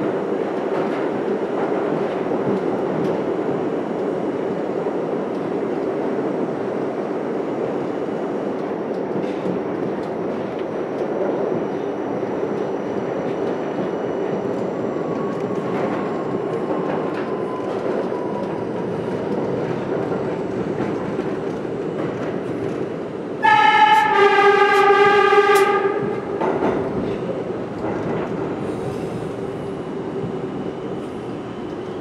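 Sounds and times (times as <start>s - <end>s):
subway train rumbling in tunnel: 0.0s - 32.0s
train horn blast: 23.4s - 26.4s.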